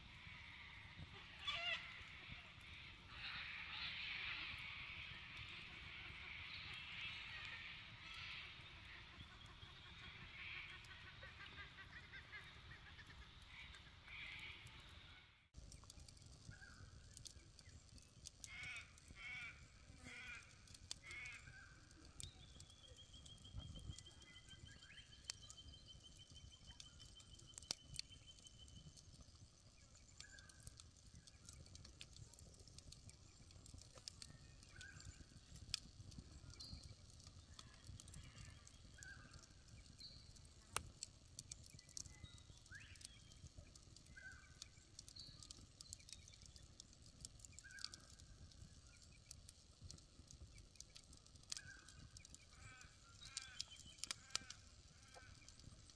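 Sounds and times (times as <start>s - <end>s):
wood fire crackling: 0.0s - 55.9s
fire pops: 15.5s - 55.9s
bird chirps: 21.4s - 30.7s.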